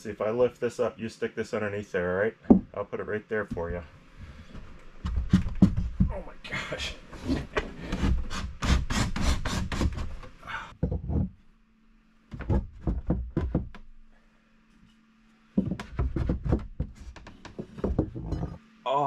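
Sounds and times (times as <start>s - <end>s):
wooden shelf knocking and scraping: 5.0s - 6.2s, 10.8s - 11.4s, 12.3s - 13.9s, 15.6s - 18.6s.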